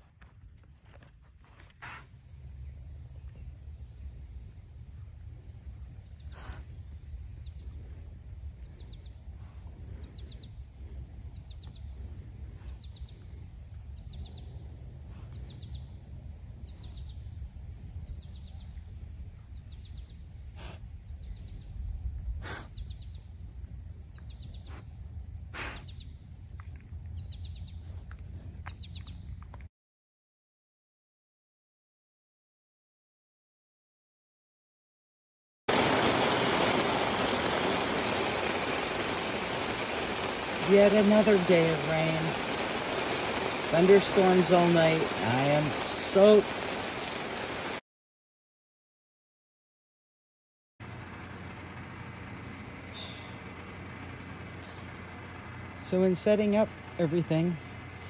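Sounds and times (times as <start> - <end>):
high insect drone: 0.0 - 29.6, 35.7 - 47.8.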